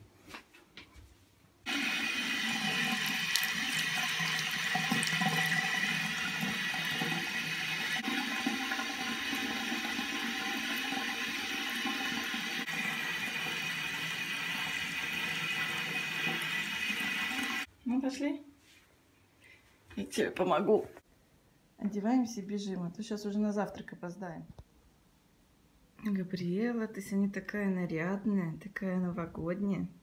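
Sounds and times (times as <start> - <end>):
tap water running into basin: 1.7 - 17.7.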